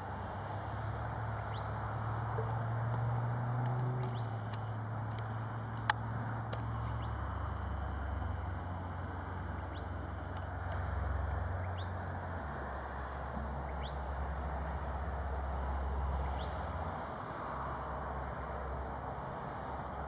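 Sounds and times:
soft outdoor hiss: 0.0s - 20.0s
steady low hum: 0.0s - 20.0s
bird chirping: 1.5s - 1.8s, 4.0s - 4.5s, 9.4s - 10.2s, 11.3s - 12.6s, 13.6s - 14.0s.

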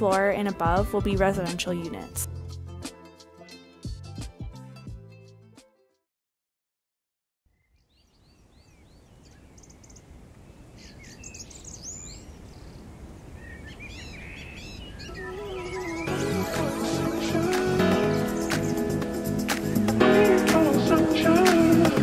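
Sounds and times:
birds chirping: 7.5s - 20.4s
low outdoor background noise: 8.0s - 15.2s.

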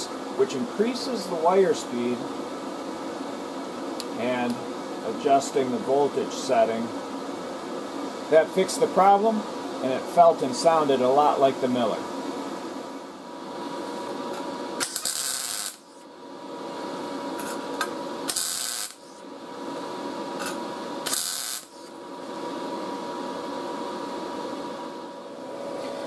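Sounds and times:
steady fan hum: 0.0s - 26.0s
welding arc bursts: 14.4s - 16.1s, 17.3s - 19.2s, 20.4s - 22.0s.

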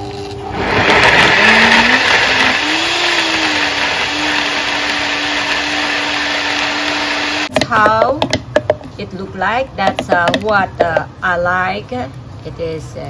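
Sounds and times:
blender motor whining: 0.4s - 7.6s.

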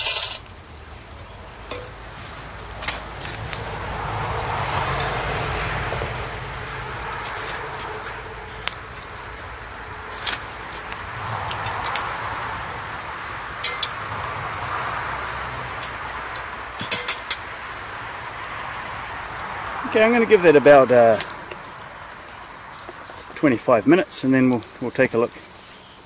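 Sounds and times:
wood fire hissing: 0.0s - 26.0s
metal shovel scraping iron lid: 7.1s - 8.2s, 16.8s - 17.4s.

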